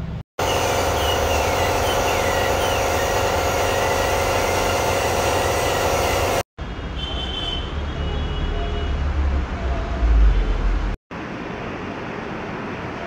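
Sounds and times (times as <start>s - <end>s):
dental equipment humming: 0.4s - 6.4s
high whine: 0.4s - 6.4s.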